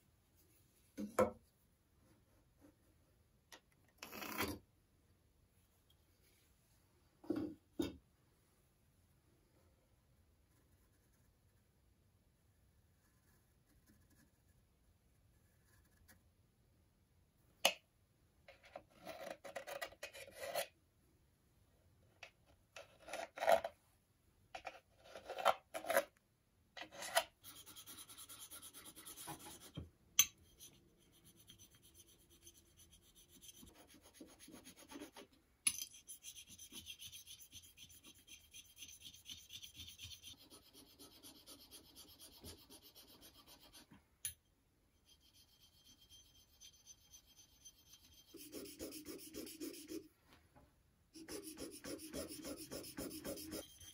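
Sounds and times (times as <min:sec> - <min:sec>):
pencil scratching on wood: 0:27.4 - 0:29.8, 0:30.4 - 0:44.0, 0:45.1 - 0:50.1, 0:51.2 - 0:53.9
chisel rubbing on sharpening plate: 0:35.8 - 0:43.9, 0:45.0 - 0:50.0, 0:51.2 - 0:53.9.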